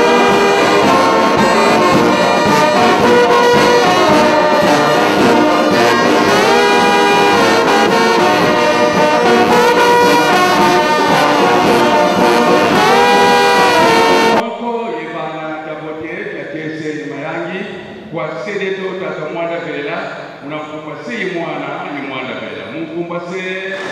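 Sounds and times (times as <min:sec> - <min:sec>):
brass band playing slow melody: 0:00.0 - 0:14.4.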